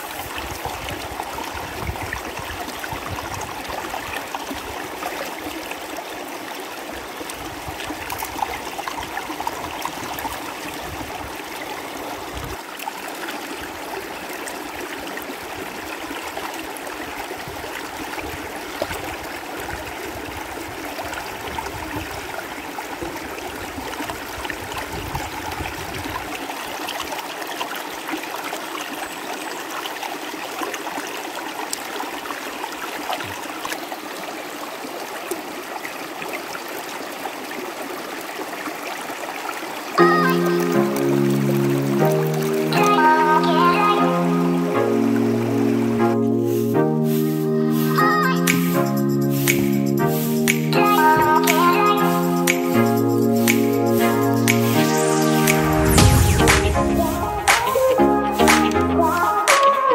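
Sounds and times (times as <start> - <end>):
river flowing over rocks: 0.0 - 46.0.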